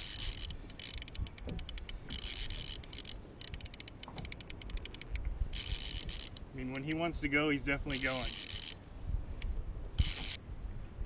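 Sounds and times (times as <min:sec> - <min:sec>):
fishing reel clicker ticking: 0:00.0 - 0:07.1, 0:07.8 - 0:08.8, 0:09.4 - 0:10.4.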